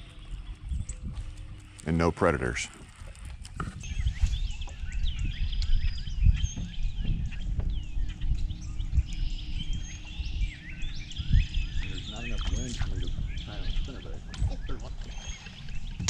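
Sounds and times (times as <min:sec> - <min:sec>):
low rumble: 0:00.0 - 0:16.0
steady low hum: 0:00.0 - 0:16.0
many birds chirping: 0:03.6 - 0:16.0.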